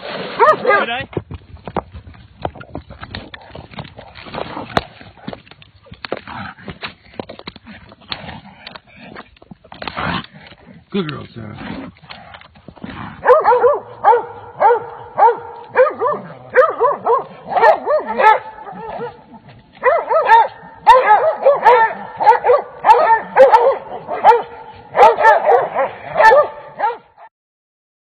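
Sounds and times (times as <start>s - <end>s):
hounds barking and yelping: 0.4s - 0.9s, 13.2s - 27.3s.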